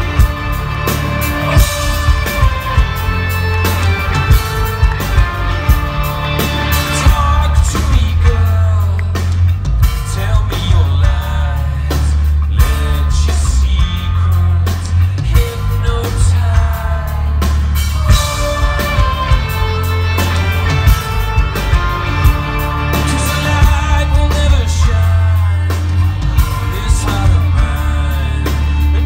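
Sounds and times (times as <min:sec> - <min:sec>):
drum beat: 0:00.0 - 0:11.4, 0:12.6 - 0:29.0
bass: 0:00.0 - 0:29.0
electric guitar: 0:00.0 - 0:29.0
man singing: 0:06.4 - 0:21.1, 0:22.8 - 0:29.0.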